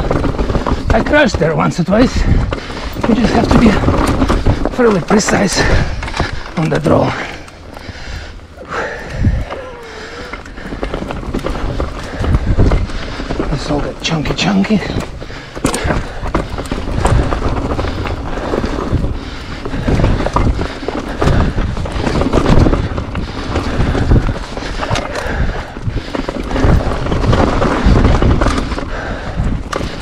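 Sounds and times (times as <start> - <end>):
bike rattling over rocks: 0.0 - 30.0
wind buffeting microphone: 0.0 - 30.0.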